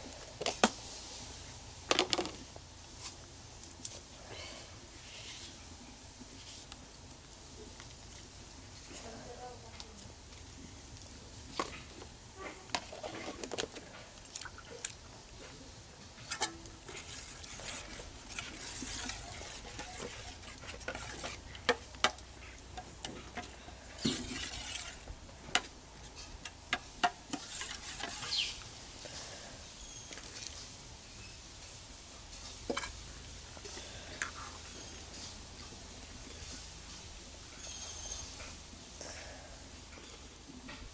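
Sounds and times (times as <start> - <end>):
liquid sloshing: 24.0 - 25.1.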